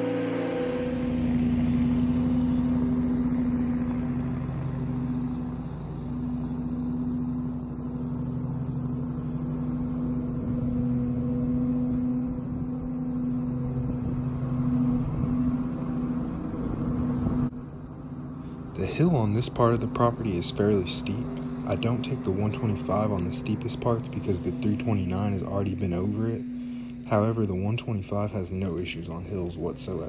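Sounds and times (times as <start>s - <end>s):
mower engine hum: 0.0s - 30.0s.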